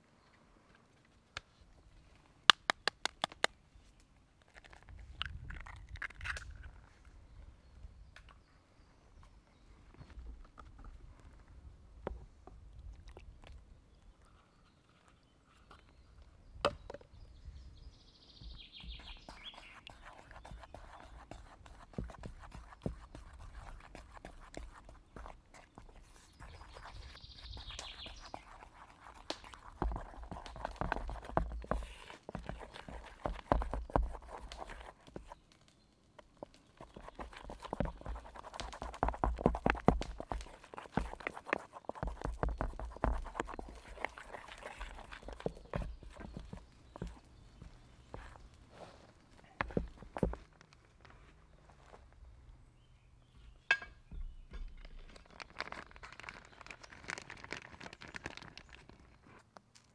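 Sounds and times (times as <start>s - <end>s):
bird chirping: 13.9s - 23.0s, 24.9s - 29.0s, 42.0s - 48.7s, 52.7s - 55.1s
wooden stick stirring in metal tin: 18.8s - 35.4s, 36.4s - 48.5s
stick scraping metal pot: 36.5s - 47.4s.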